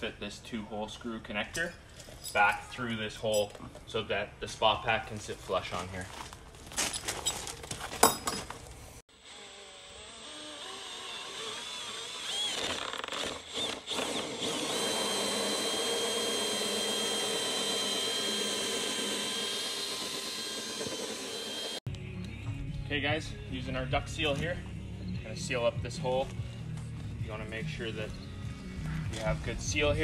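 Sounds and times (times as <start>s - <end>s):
cordless drill whining: 9.1s - 21.8s.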